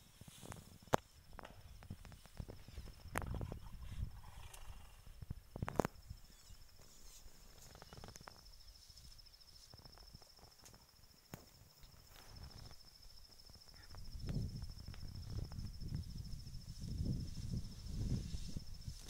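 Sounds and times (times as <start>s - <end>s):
faint high-pitched insect trill: 0.0s - 19.0s
elephant rustling grass: 16.6s - 19.0s.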